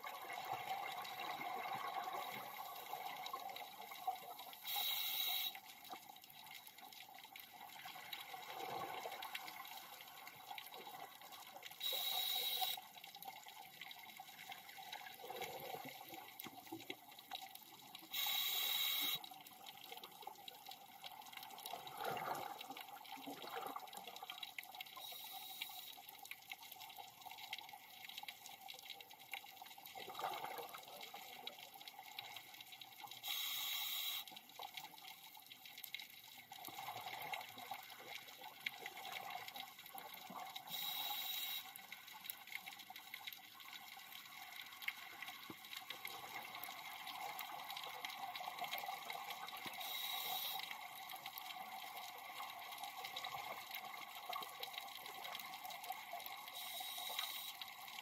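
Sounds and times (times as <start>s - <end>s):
exhaled air bubbling underwater: 0.0s - 58.0s
scuba regulator hiss: 4.7s - 5.6s, 11.8s - 12.8s, 18.2s - 19.2s, 33.2s - 34.3s, 40.7s - 41.7s, 49.8s - 50.7s, 56.6s - 57.6s.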